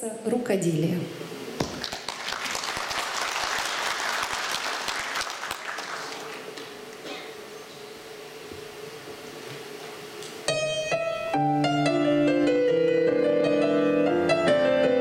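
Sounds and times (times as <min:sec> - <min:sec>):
audience applause: 0:01.6 - 0:07.0.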